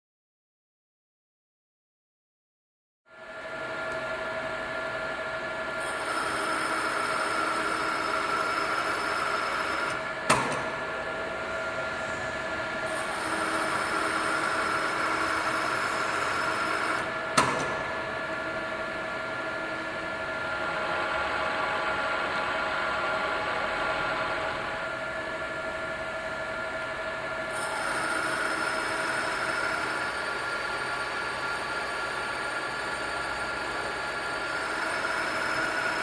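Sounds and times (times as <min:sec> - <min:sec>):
drill press running: 0:03.5 - 0:36.0.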